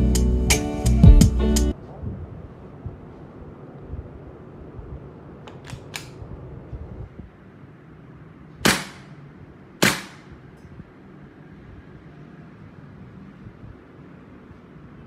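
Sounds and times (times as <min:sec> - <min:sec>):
airsoft pistol shots: 0:08.6 - 0:09.2, 0:09.8 - 0:10.4.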